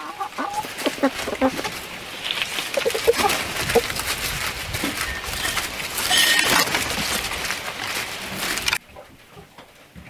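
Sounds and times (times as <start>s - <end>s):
chicken call: 0.0s - 4.0s
chickens scratching in dry leaves: 0.0s - 8.8s.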